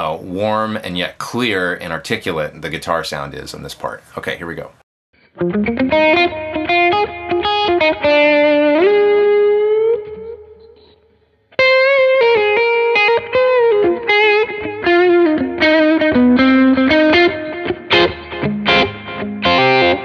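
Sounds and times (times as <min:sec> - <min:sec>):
overdriven electric guitar lead: 0:05.3 - 0:20.0.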